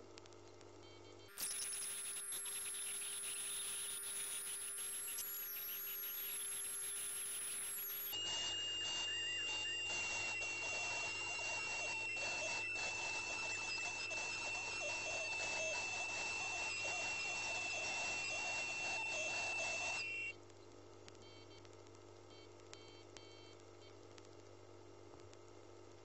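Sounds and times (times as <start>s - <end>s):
faint beeps: 1.0s - 20.3s
ultrasonic scaler high-pitched tone: 1.3s - 20.3s.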